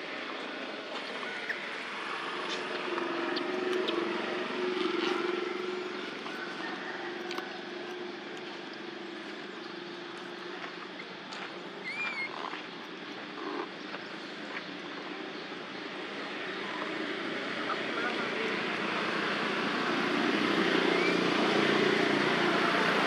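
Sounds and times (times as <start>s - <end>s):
passing motor engine hum: 0.0s - 23.0s.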